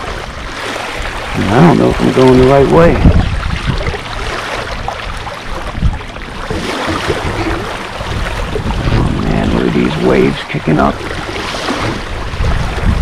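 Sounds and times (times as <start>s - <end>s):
waves slapping against hull: 0.0s - 13.0s
wind rumbling on microphone: 0.0s - 13.0s
low thumps: 5.7s - 13.0s.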